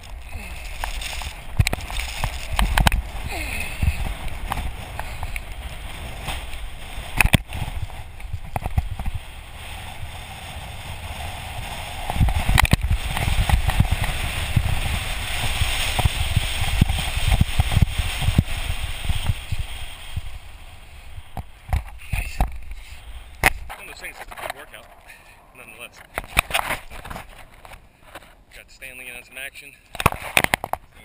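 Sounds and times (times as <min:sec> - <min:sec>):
wind buffeting microphone: 0:00.0 - 0:24.4
sand hissing under surfboard: 0:09.1 - 0:21.4.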